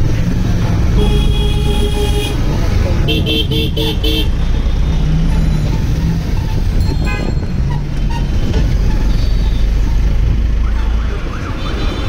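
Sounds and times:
motorcycle engine rumble: 0:00.0 - 0:12.0
road noise: 0:00.0 - 0:12.0
horn toot: 0:01.0 - 0:02.4.

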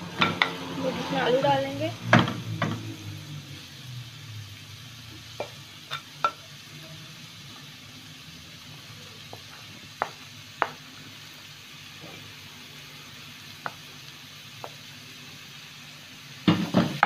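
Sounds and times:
vegetables sizzling in oil: 0:00.0 - 0:17.0
spoon tapping pan: 0:05.4 - 0:06.4, 0:09.3 - 0:10.8.

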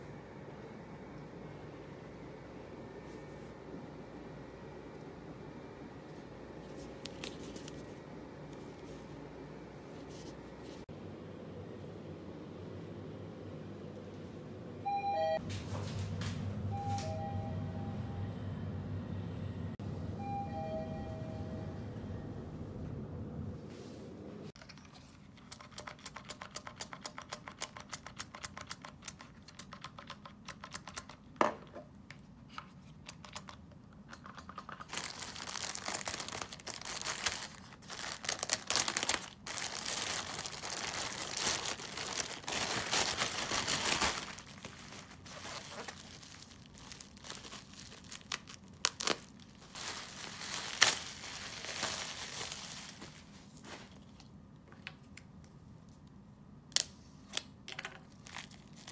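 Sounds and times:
plastic pouch tearing and crinkling: 0:34.6 - 0:53.2, 0:58.1 - 0:58.9
plastic wrapping rustling: 0:34.6 - 0:54.2, 0:58.0 - 0:58.9.

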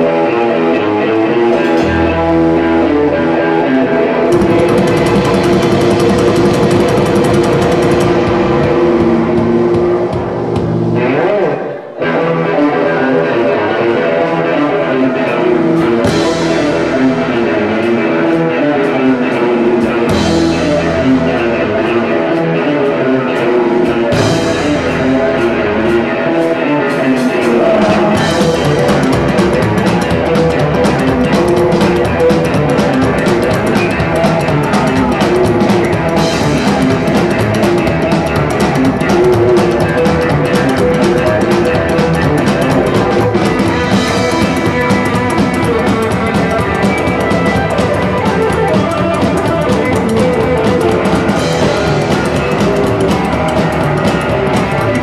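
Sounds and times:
drum kit: 0:00.0 - 0:03.4, 0:04.3 - 0:55.0
electric guitar: 0:00.0 - 0:55.0
upright double bass: 0:27.4 - 0:55.0.

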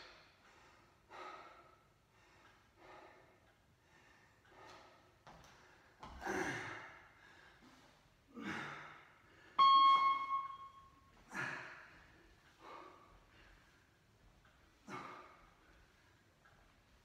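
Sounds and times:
ringing tone: 0:09.6 - 0:11.0.

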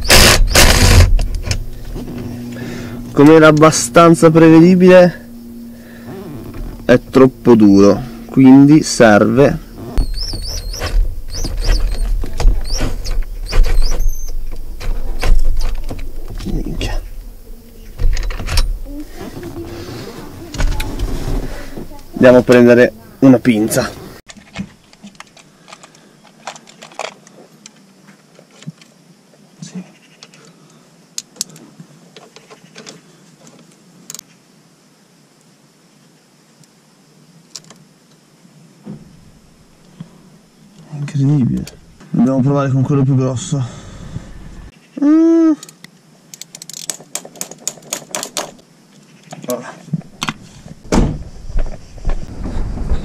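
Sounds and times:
drill motor hum: 0:00.0 - 0:03.3, 0:09.6 - 0:14.8
drill bit squealing against metal: 0:09.7 - 0:14.4.

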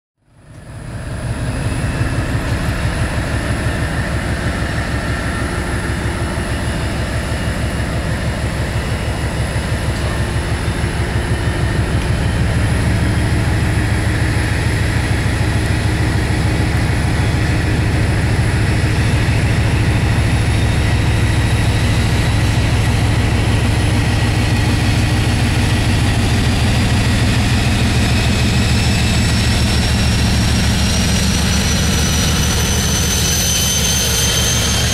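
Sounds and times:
diesel locomotive engine running: 0:00.2 - 0:34.9.

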